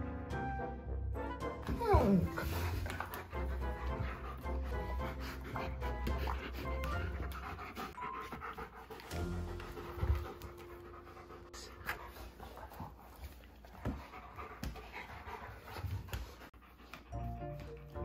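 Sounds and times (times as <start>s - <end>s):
background music: 0.0s - 13.0s, 16.8s - 18.0s
dogs panting: 1.6s - 18.0s.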